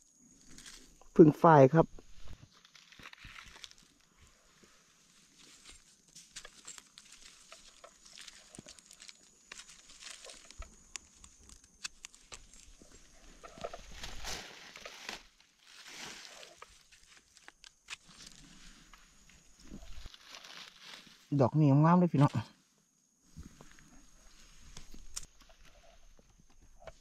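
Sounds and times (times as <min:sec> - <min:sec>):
rustling of dry leaves and twigs: 0:00.2 - 0:01.2, 0:01.9 - 0:27.0
small clicks: 0:06.4 - 0:12.8.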